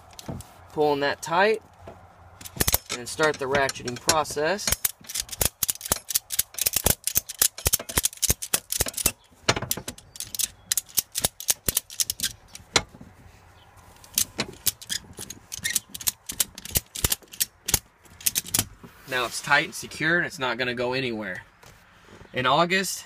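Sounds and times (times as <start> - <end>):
ratchet strap clicking: 2.4 - 12.9, 14.0 - 18.7.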